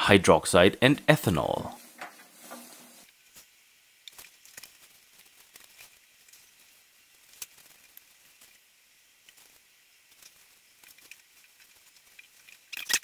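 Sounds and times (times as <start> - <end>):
bubbles ticking and crackling: 7.3 - 13.0.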